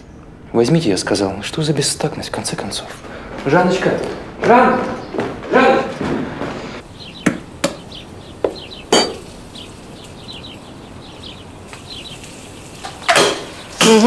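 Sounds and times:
small birds chirping: 0:00.0 - 0:14.0
sharp clinks and knocks: 0:08.9 - 0:09.3
rustle: 0:09.2 - 0:13.8.

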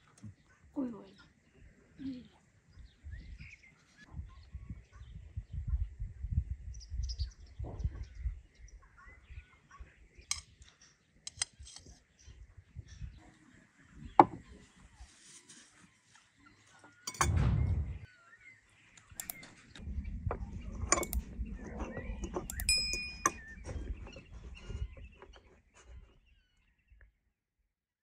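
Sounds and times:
cutlery and plates clinking: 0:17.1 - 0:17.4
low rumble: 0:17.1 - 0:18.1, 0:19.8 - 0:24.1.

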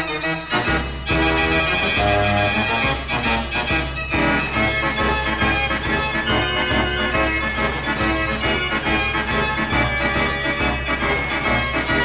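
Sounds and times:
organ-like keyboard music: 0:00.0 - 0:12.0.

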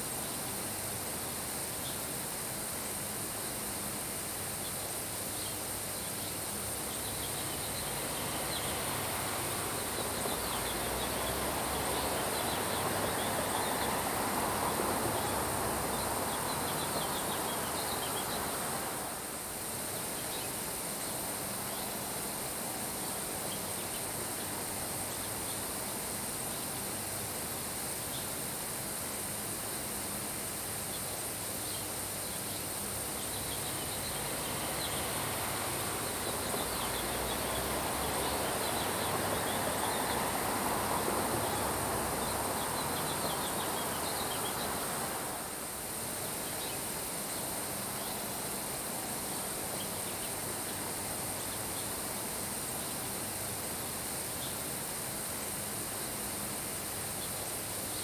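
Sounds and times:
faint chirping: 0:04.4 - 0:22.2, 0:30.8 - 0:53.3
rain falling on grass: 0:06.4 - 0:28.8, 0:29.4 - 0:58.0.

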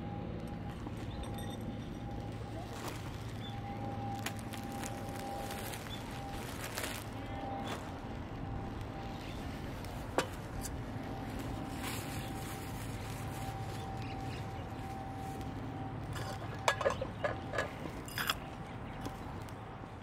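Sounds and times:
fire rumbling in wood stove: 0:00.0 - 0:20.0
sharp fire crackles: 0:02.0 - 0:16.4.

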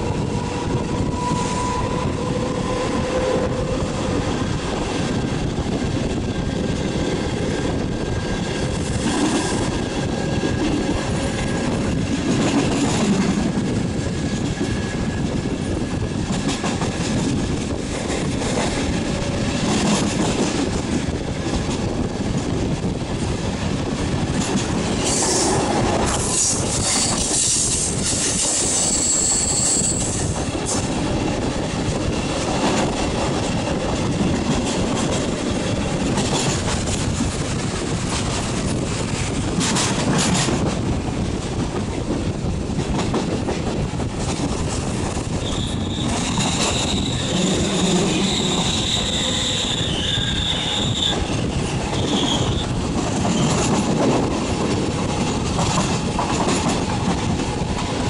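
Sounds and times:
train wheels rumbling on rail: 0:00.0 - 0:58.0
high wheel squeal: 0:28.6 - 0:30.3, 0:45.4 - 0:51.4, 0:52.0 - 0:52.7.

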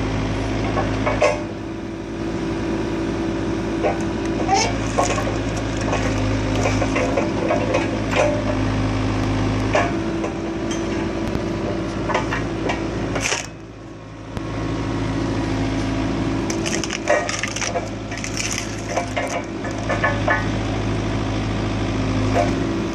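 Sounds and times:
excavator engine and hydraulics: 0:00.0 - 0:22.9
wood cracking and splitting: 0:04.0 - 0:08.4, 0:13.2 - 0:13.6, 0:16.4 - 0:20.4.

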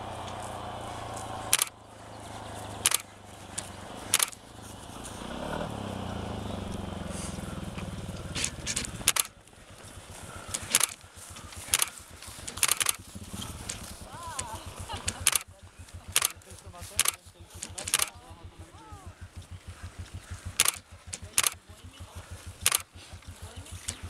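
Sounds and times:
motor engine humming: 0:00.0 - 0:24.0
sharp clicks: 0:01.0 - 0:01.8, 0:02.6 - 0:04.5, 0:07.7 - 0:18.4, 0:19.3 - 0:24.0.

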